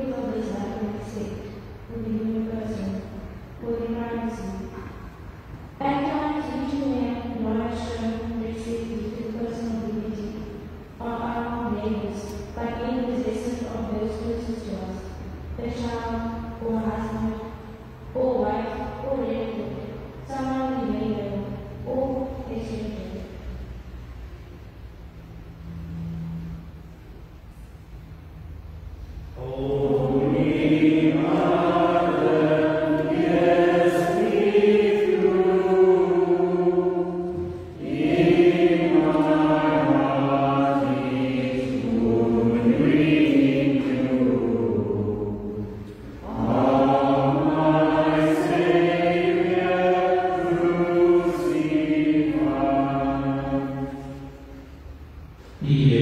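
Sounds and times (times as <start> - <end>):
voices singing a slow hymn: 29.3 - 56.0.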